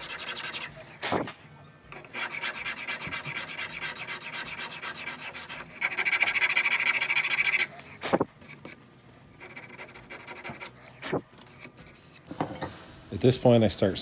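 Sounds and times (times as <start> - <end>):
wood rasp on wood: 0.0 - 1.3, 2.0 - 8.2.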